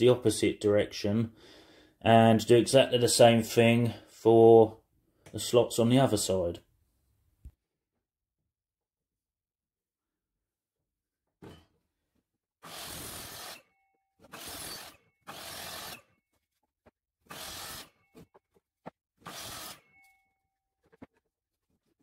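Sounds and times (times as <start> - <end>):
mitre saw cutting wood: 12.6 - 16.1, 17.3 - 18.0, 19.2 - 19.8.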